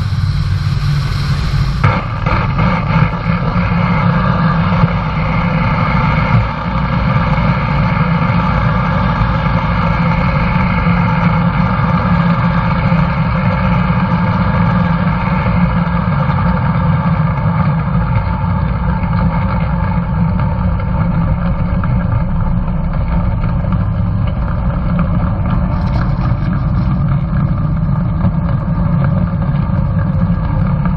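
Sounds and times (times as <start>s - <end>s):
piston engine and propeller running: 0.0s - 30.9s.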